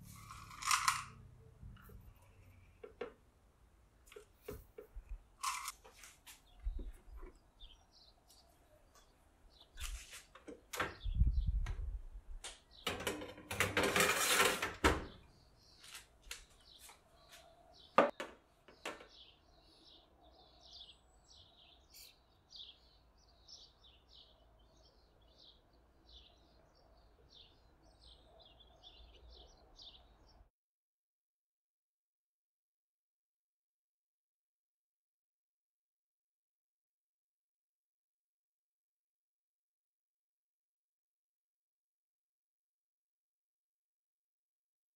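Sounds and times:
small birds chirping: 0:04.0 - 0:12.9, 0:15.1 - 0:30.5
metal baking tray clattering: 0:12.9 - 0:15.0.

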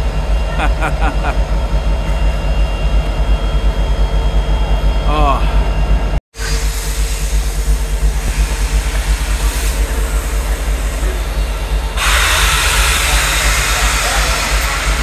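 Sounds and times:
loud steam hiss: 0:06.4 - 0:15.0
locomotive engine idling: 0:07.1 - 0:15.0.

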